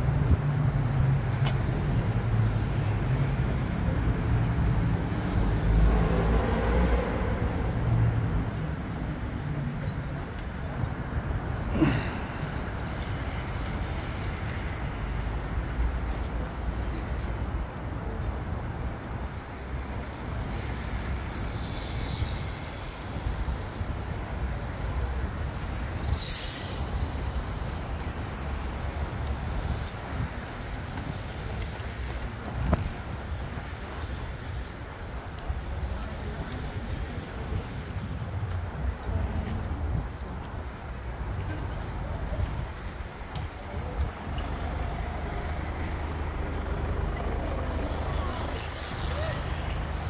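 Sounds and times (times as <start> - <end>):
outdoor street rumble: 0.0 - 50.0
hiss: 26.0 - 27.8.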